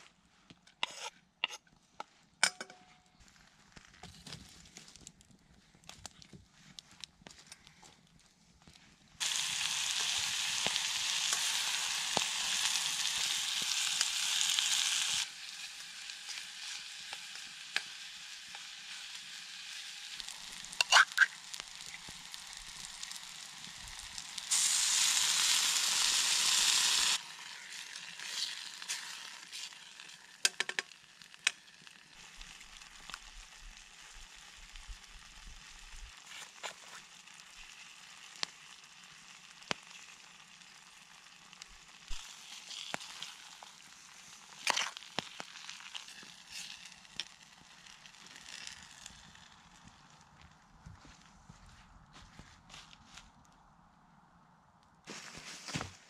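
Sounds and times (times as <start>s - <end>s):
food sizzling in a kettle: 9.2s - 49.8s.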